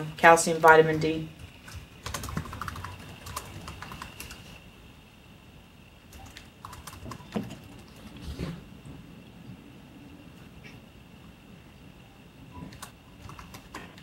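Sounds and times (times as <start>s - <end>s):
faint steady high tone: 11.5s - 13.2s.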